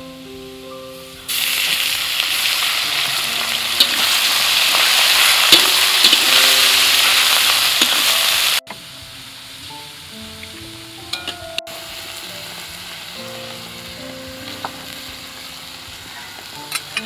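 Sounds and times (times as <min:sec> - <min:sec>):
meat sizzling in hot oil: 0:01.3 - 0:10.6.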